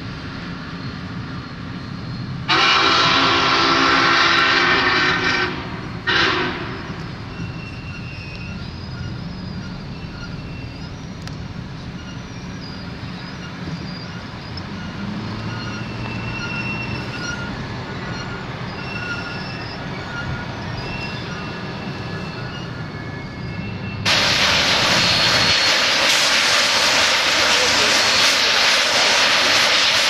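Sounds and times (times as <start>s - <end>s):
wheels squealing: 0.0s - 2.5s, 6.8s - 30.0s
train rumbling past: 0.0s - 30.0s
steam hissing: 24.0s - 30.0s.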